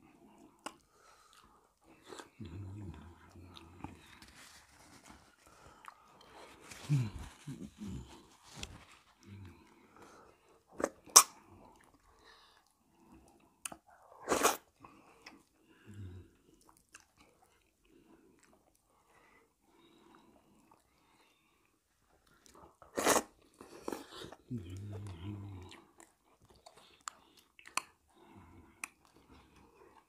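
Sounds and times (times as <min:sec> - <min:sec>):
people chewing: 0:00.2 - 0:13.8, 0:14.4 - 0:30.0
mouth smacks and clicks: 0:10.8 - 0:12.0, 0:24.3 - 0:28.0.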